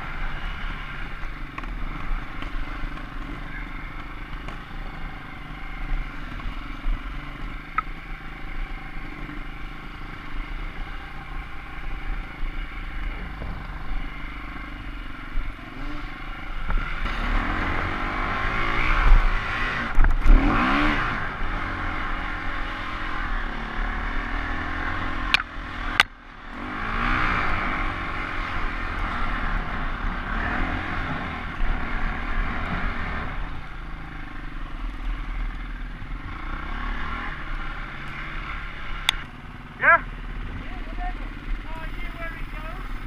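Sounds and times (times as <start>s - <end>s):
motorcycle engine revving: 0.0s - 43.0s
motorcycle clattering over bumps: 0.6s - 23.2s
sharp clicks: 25.3s - 26.2s.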